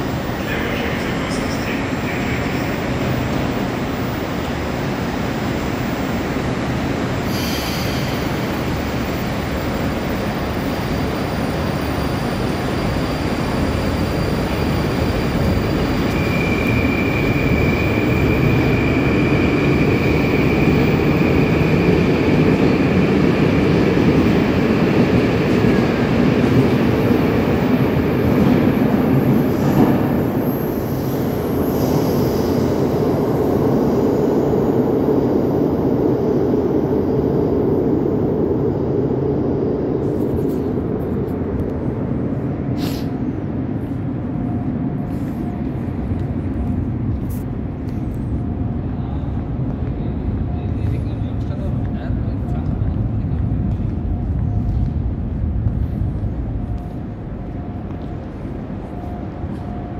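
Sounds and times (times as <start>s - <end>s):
subway train running: 0.0s - 59.9s
short hiss: 42.8s - 43.2s.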